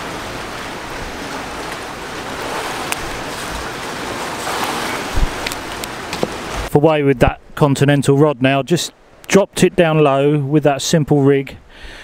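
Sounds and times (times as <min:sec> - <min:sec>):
sea waves washing: 0:00.0 - 0:10.5
wind: 0:00.0 - 0:12.0.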